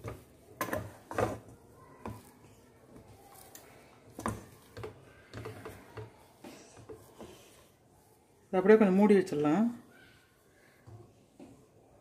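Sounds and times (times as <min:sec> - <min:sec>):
ladle knocking and scraping pan: 0:00.0 - 0:02.3.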